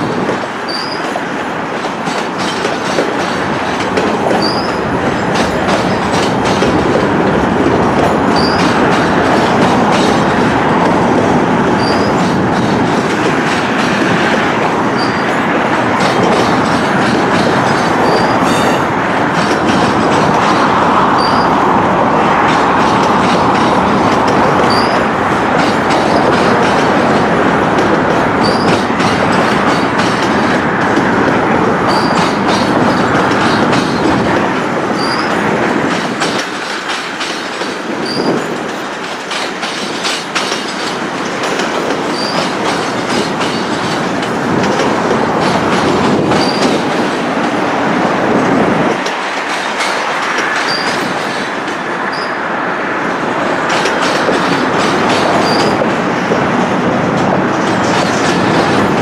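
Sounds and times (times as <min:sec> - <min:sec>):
clickety-clack over rail joints: 0:00.0 - 0:59.0
freight cars rumbling: 0:00.0 - 0:59.0
high wheel squeal: 0:00.7 - 0:01.2, 0:04.4 - 0:04.8, 0:08.2 - 0:08.7, 0:11.8 - 0:12.2, 0:14.9 - 0:15.4, 0:18.0 - 0:18.9, 0:21.2 - 0:21.6, 0:24.6 - 0:25.1, 0:28.4 - 0:28.8, 0:31.9 - 0:32.3, 0:35.0 - 0:35.4, 0:38.0 - 0:38.5, 0:42.1 - 0:42.5, 0:46.4 - 0:46.8, 0:50.6 - 0:51.1, 0:52.1 - 0:52.4, 0:55.4 - 0:55.8.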